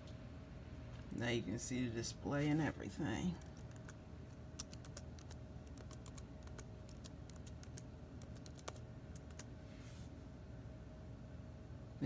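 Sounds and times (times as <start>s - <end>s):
faint low hum: 0.0s - 12.0s
laptop keyboard clicks: 4.6s - 9.5s.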